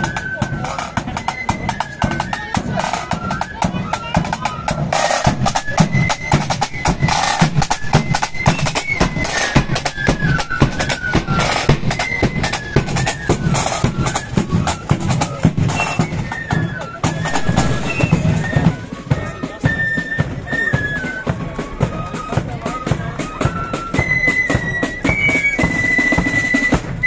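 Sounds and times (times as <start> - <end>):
rapid side drum strokes: 0.0 - 20.4
flutes playing march tune: 0.0 - 27.0.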